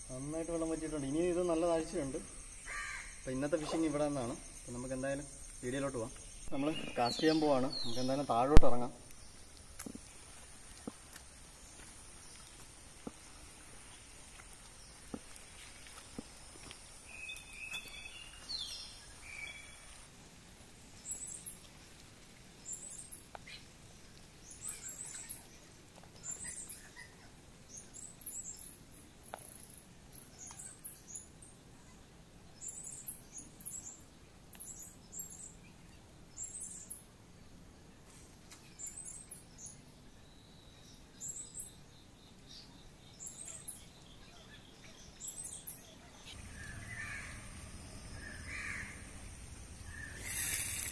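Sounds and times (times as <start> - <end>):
small birds chirping: 0.0 - 20.2, 20.8 - 50.9.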